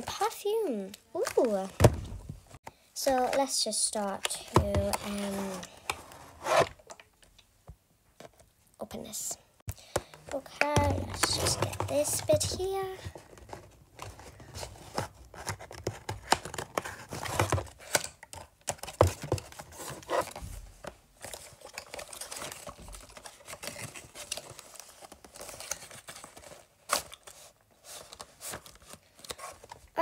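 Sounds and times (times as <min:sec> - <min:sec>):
cardboard tearing and rustling: 0:21.2 - 0:30.0.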